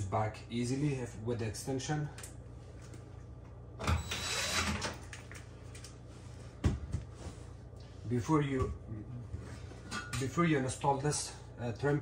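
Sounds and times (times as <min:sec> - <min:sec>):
cordless drill driving a screw: 0:04.0 - 0:04.8.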